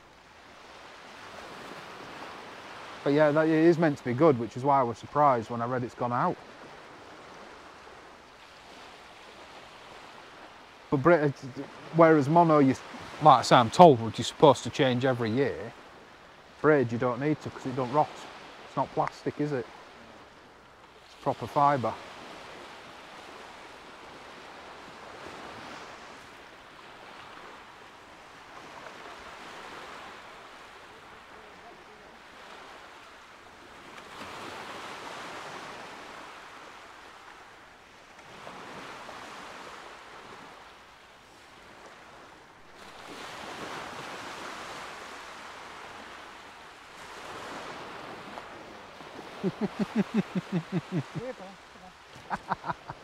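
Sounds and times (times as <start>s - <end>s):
surf breaking on beach: 0.6s - 37.5s, 41.4s - 53.0s
man laughing loudly: 49.4s - 51.4s, 52.1s - 53.0s.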